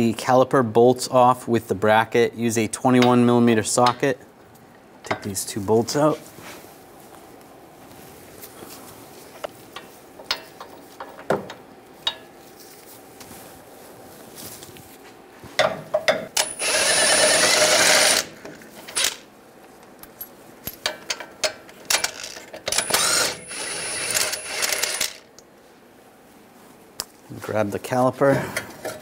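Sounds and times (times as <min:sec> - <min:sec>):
impact wrench spinning bolts: 0:16.3 - 0:19.3, 0:20.8 - 0:25.3.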